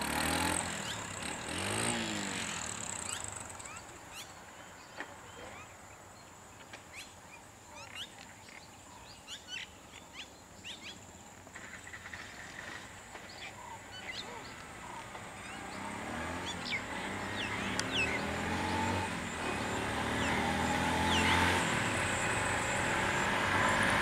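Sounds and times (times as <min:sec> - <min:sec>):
small motorcycle engines: 0:00.0 - 0:05.7, 0:11.3 - 0:24.0
birds chirping: 0:00.2 - 0:24.0.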